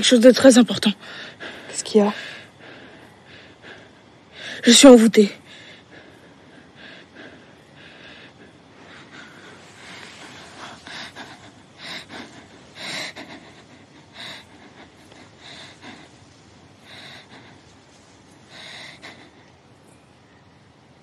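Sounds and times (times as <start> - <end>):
person breathing and sniffing: 6.6 - 19.4.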